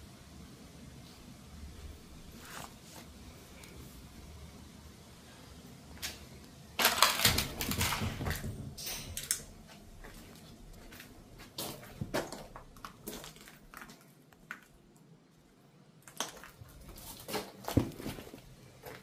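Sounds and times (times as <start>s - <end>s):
footsteps crunching on rubble: 9.7s - 14.8s, 16.0s - 19.0s.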